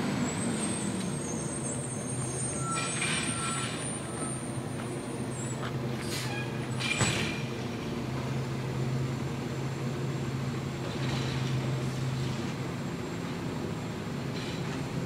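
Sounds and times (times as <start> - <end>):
air brake hisses: 6.0 - 6.6.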